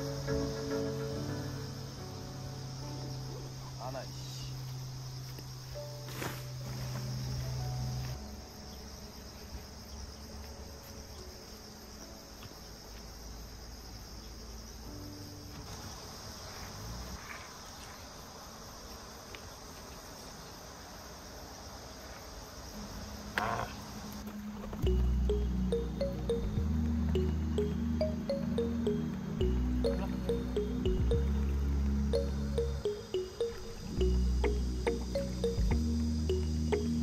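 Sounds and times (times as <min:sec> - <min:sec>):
insects chirring: 0:00.0 - 0:37.0.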